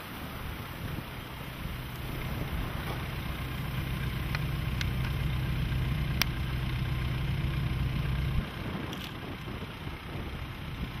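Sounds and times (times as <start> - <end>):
vehicle engine idling: 0.0 - 11.0
wind noise: 0.0 - 11.0
faint ticks: 4.3 - 5.2, 6.2 - 6.4.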